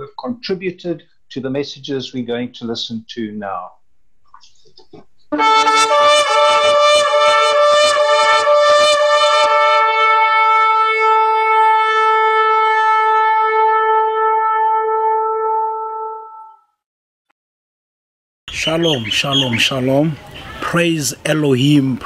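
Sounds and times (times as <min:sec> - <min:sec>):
shofar blasts: 0:05.4 - 0:16.6.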